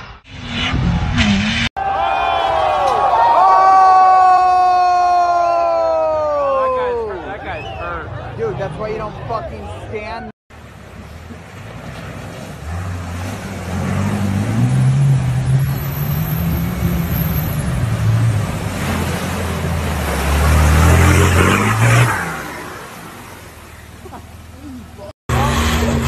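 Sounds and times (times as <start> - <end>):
vehicle engine pulling: 10.5 - 26.0
water rushing and splashing: 10.5 - 26.0.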